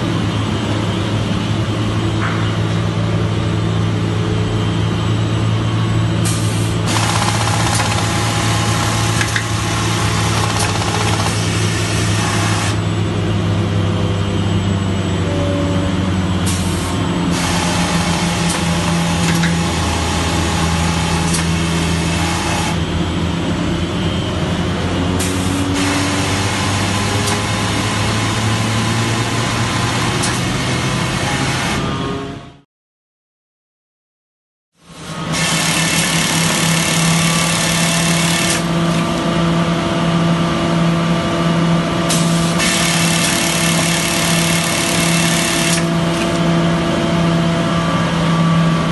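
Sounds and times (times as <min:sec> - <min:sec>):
sewing machine mechanical hum: 0:03.5 - 0:32.3, 0:34.8 - 0:47.0
sharp mechanical clicks: 0:06.8 - 0:08.2, 0:10.3 - 0:11.6.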